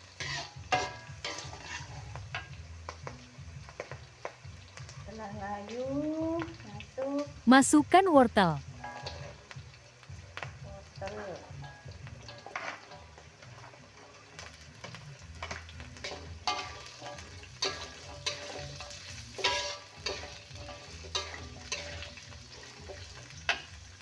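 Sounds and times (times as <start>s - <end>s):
metal spatula scraping wok: 0.0s - 2.6s, 8.7s - 9.6s, 10.4s - 24.0s
oil sizzling: 0.0s - 24.0s.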